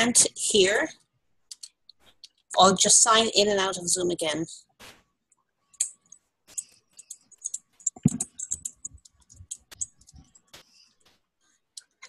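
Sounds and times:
keyboard typing: 5.8s - 11.1s.

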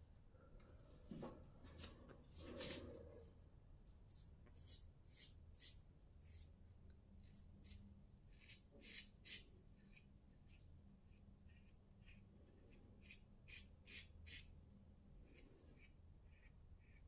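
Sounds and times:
razor scraping stubble: 4.1s - 6.5s, 7.2s - 14.5s.

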